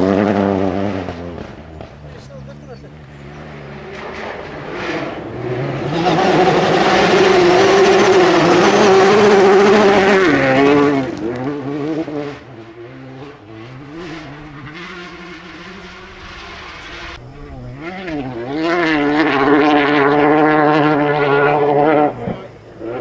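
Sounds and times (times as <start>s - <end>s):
gravel spraying from tyres: 0.0s - 12.6s
rally car engine passing: 0.0s - 23.0s.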